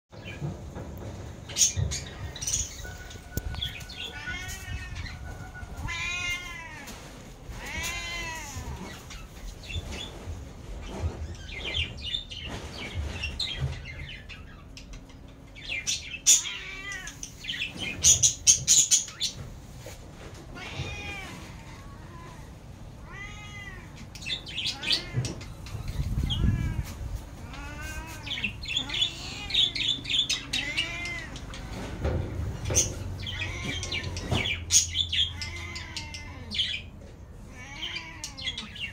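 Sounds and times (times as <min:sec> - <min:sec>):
cat meowing: 0:03.9 - 0:09.1, 0:16.4 - 0:17.2, 0:20.5 - 0:24.0, 0:26.2 - 0:31.4, 0:35.2 - 0:36.8, 0:37.4 - 0:38.8.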